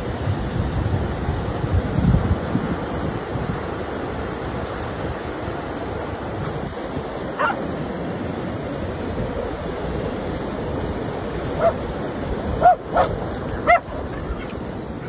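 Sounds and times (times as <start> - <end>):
ocean surf rushing: 0.0 - 15.0
dog barking high: 7.4 - 7.7, 11.6 - 11.8, 12.6 - 14.6.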